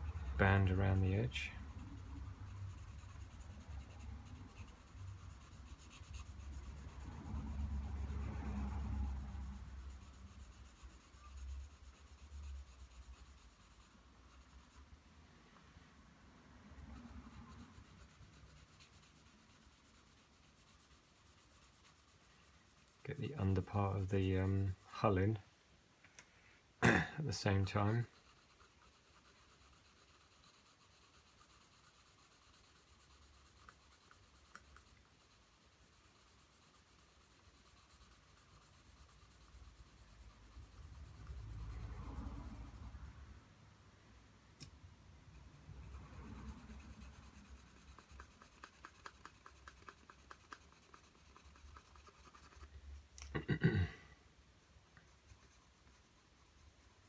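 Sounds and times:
pencil scratching on paper: 0.0s - 14.9s, 16.6s - 25.4s, 27.2s - 43.2s, 45.3s - 52.8s, 54.6s - 57.0s.

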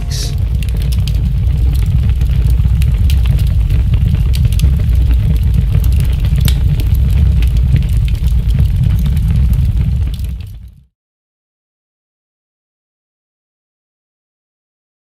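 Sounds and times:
deep rumble: 0.0s - 10.6s
crackles and clicks: 0.0s - 10.9s.

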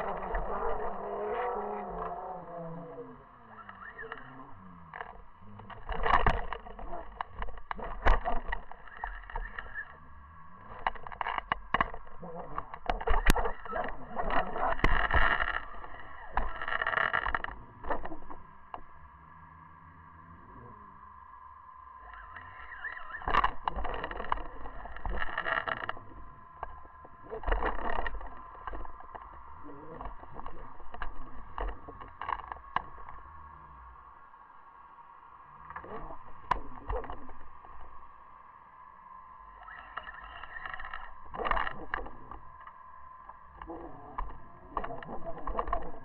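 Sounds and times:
crackling rubbing noise: 0.0s - 38.4s, 39.0s - 46.0s
low underwater rumble: 0.0s - 46.0s
underwater clicks and knocks: 3.7s - 19.0s, 23.2s - 33.3s, 35.6s - 38.1s, 40.0s - 46.0s.

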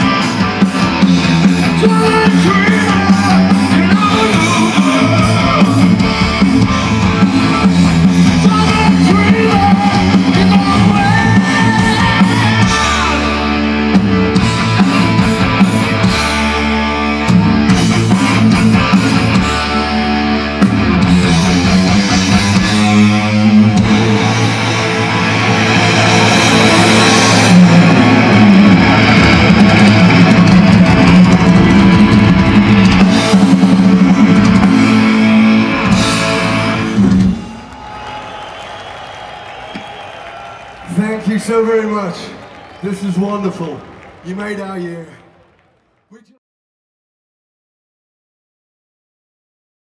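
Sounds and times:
bass guitar: 0.0s - 37.7s
drum kit: 0.0s - 37.7s
gliding lead guitar line: 0.0s - 37.7s
distorted electric guitars: 0.0s - 38.3s.

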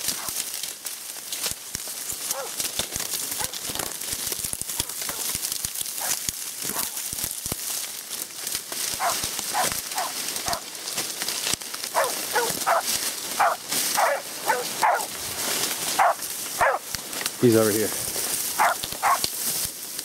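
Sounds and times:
dry reeds crackling and rustling: 0.0s - 20.0s
dog barking: 0.1s - 0.4s, 2.3s - 2.6s, 3.4s - 3.6s, 4.8s - 5.3s, 6.0s - 7.0s, 9.0s - 10.7s, 11.9s - 15.1s, 16.0s - 16.9s, 18.6s - 19.2s.

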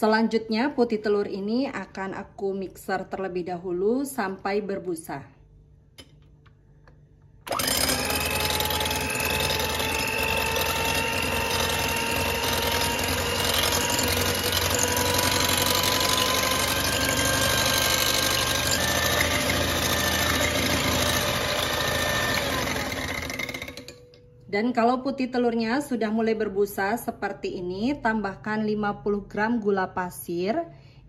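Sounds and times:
electric hand mixer whine: 7.4s - 24.0s
beaters whisking egg whites: 7.5s - 24.0s.

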